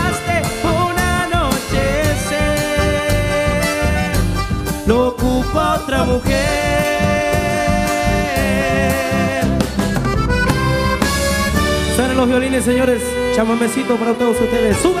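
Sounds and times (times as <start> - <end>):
accordion: 0.0 - 15.0
bass and drum beat: 0.0 - 15.0
violins: 9.8 - 15.0.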